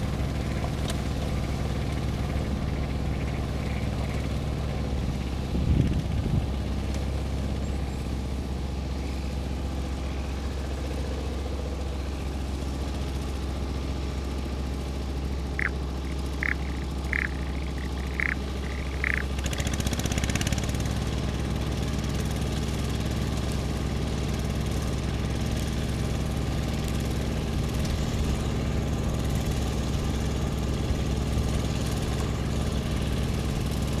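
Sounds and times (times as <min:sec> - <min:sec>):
tiller engine running: 0:00.0 - 0:34.0
short high calls: 0:15.6 - 0:19.4.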